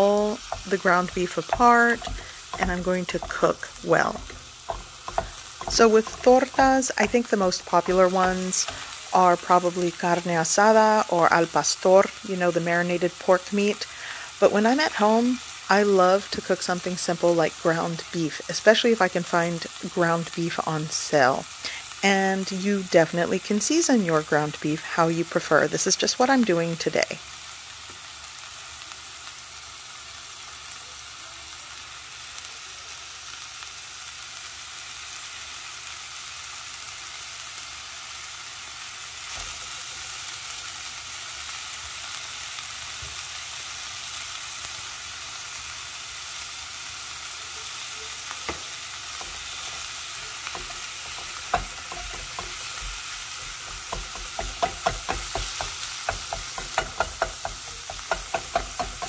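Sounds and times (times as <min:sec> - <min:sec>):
ground beef sizzling in skillet: 0:00.0 - 0:59.0
wooden spatula scraping pan: 0:50.5 - 0:59.0.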